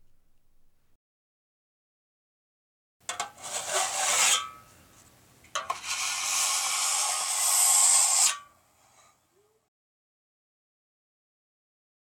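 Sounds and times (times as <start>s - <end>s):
long scraping rasping strokes: 3.2s - 4.6s, 5.6s - 9.1s.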